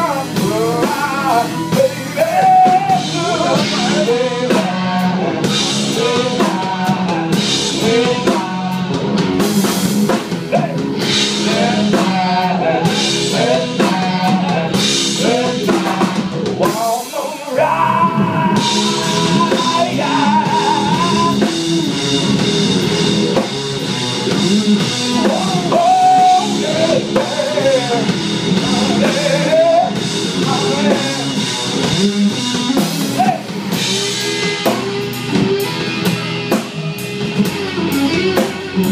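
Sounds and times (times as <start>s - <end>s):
man singing: 0.0s - 9.1s, 11.4s - 21.6s, 25.0s - 31.5s, 33.0s - 33.5s
electric guitar: 0.0s - 16.8s, 17.4s - 38.9s
bass guitar: 0.0s - 38.9s
drum kit with cymbals: 0.0s - 38.9s.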